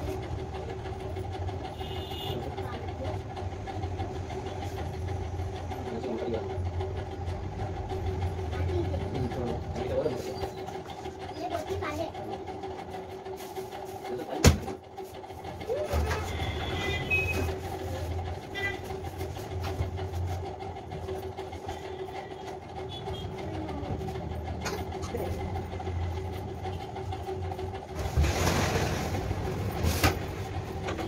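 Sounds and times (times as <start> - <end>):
mechanical hum: 0.0 - 31.0.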